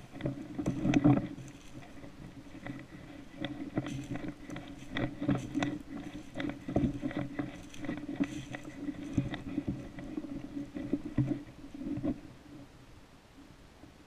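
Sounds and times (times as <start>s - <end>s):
steady low hum: 0.0s - 14.0s
footsteps crunching through dry leaves: 1.2s - 11.2s.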